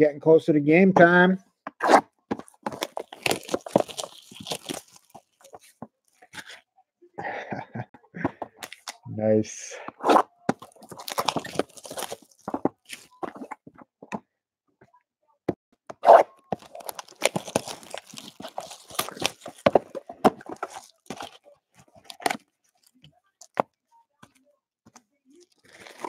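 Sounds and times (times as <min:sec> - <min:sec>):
cellophane tearing and crinkling: 0:02.6 - 0:06.6, 0:10.6 - 0:13.5, 0:16.5 - 0:22.9, 0:25.3 - 0:26.0.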